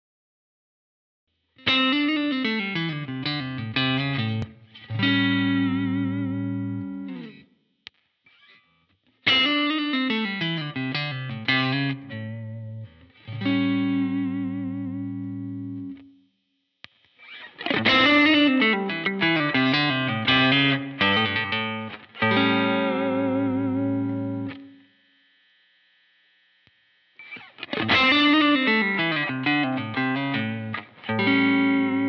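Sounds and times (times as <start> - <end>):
electric guitar chords: 1.6 - 7.5, 9.2 - 16.2, 17.2 - 24.9, 27.2 - 32.0.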